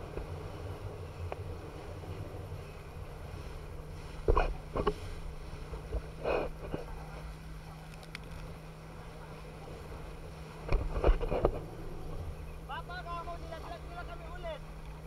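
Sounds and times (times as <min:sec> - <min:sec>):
low hum: 0:00.0 - 0:15.0
water rushing: 0:00.0 - 0:15.0
wind buffeting microphone: 0:00.0 - 0:15.0.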